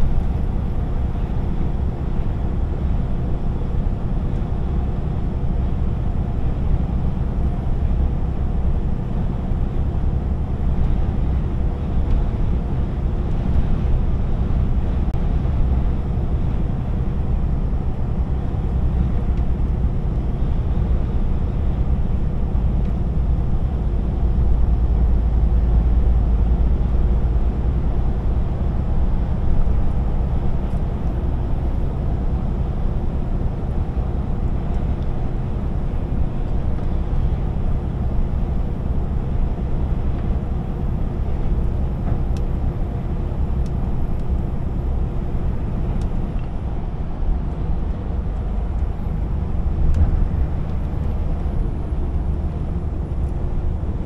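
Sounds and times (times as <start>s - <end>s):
truck diesel engine rumble: 0.0s - 54.0s
tyre and road noise: 39.5s - 54.0s.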